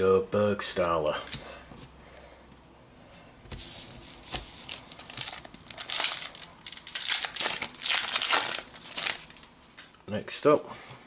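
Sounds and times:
foil wrapper tearing and crinkling: 4.6s - 9.5s.

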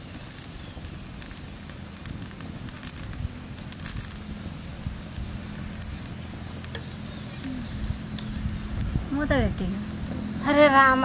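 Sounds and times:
faint clicks: 0.2s - 9.0s.

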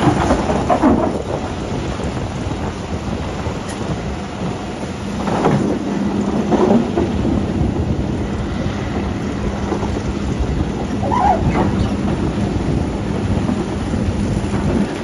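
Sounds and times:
quarry machinery rumble: 0.0s - 15.0s
machinery rattling: 8.9s - 15.0s.

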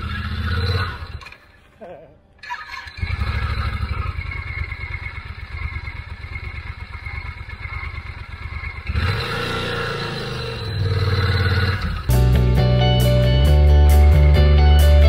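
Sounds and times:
motorcycle engine passing: 0.0s - 1.6s, 2.4s - 12.2s
motorcycle engine idling: 2.4s - 12.4s
music: 12.1s - 15.0s.

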